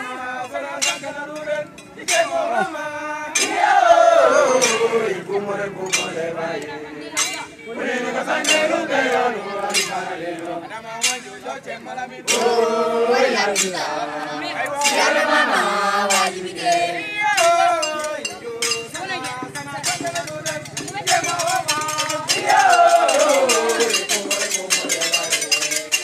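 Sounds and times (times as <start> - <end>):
crowd singing and chanting: 0.0 - 26.0
metallic percussion clinks: 0.4 - 11.5, 12.2 - 26.0.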